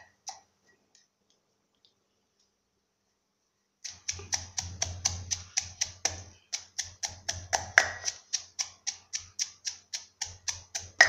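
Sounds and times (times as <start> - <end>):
pestle pounding in a clay mortar: 3.9 - 11.0.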